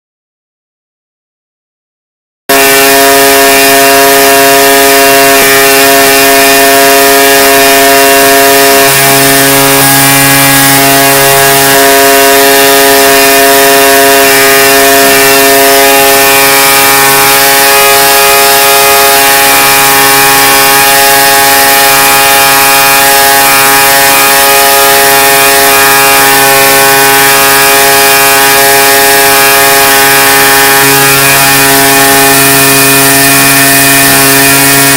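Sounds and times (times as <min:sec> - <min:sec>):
fogger machine drone: 0:02.5 - 0:34.9.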